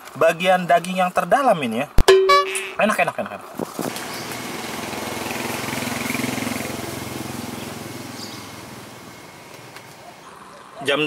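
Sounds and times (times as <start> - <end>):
passing vehicle engine: 3.9 - 10.6.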